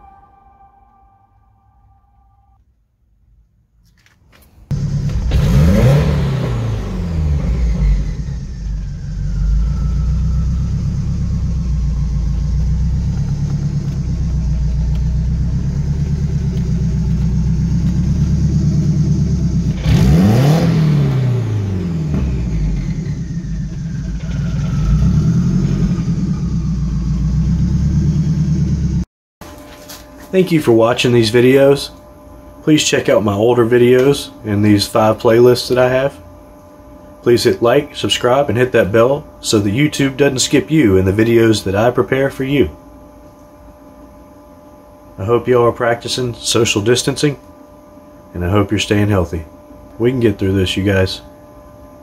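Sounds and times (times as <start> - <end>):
faint engine whine: 4.4 - 52.0
car engine starting and idling: 4.7 - 29.1.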